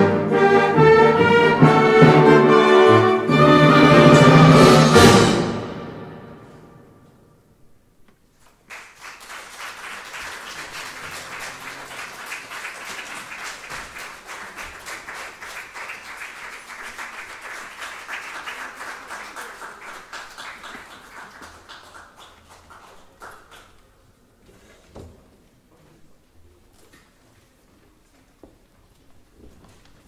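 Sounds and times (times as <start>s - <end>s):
audience applauding: 8.5s - 23.9s.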